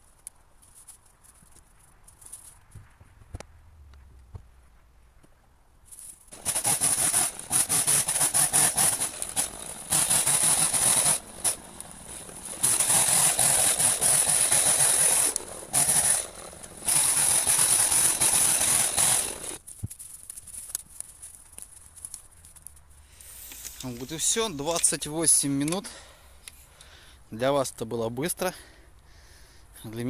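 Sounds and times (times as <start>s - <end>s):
chainsaw cutting branches: 6.3s - 19.6s
chainsaw idling: 6.3s - 19.6s.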